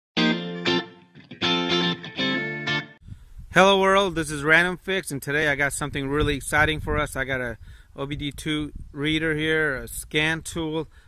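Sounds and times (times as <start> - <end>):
distorted electric guitar chords: 0.2 - 3.0.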